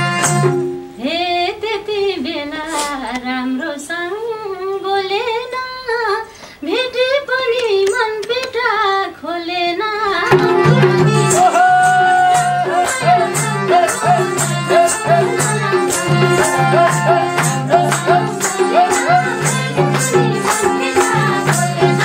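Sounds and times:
hand drum rhythm: 0:00.0 - 0:00.8, 0:10.2 - 0:22.0
person singing: 0:06.7 - 0:22.0
harmonium melody: 0:10.2 - 0:22.0
hand clapping: 0:10.8 - 0:22.0.

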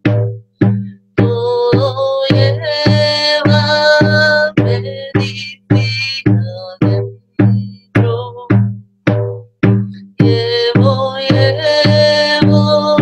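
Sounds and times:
frame drum deep booms: 0:00.0 - 0:13.0
woman chanting: 0:01.2 - 0:08.6, 0:10.2 - 0:13.0.

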